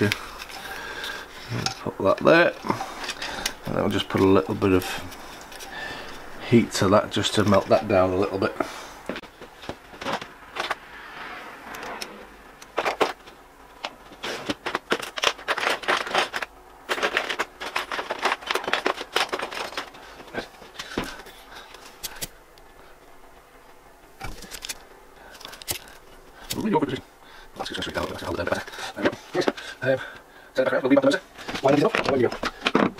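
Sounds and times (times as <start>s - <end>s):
small tools clicking and rattling: 0.0s - 6.3s, 11.7s - 22.4s, 24.2s - 26.8s.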